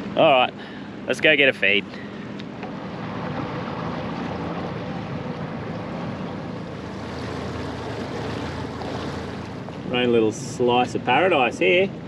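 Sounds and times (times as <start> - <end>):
boat motor hum: 0.0 - 12.0
water wash: 2.6 - 11.8.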